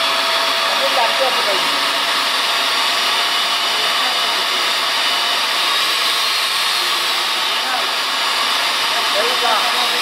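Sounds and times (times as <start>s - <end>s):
core drill cutting concrete: 0.0s - 10.0s.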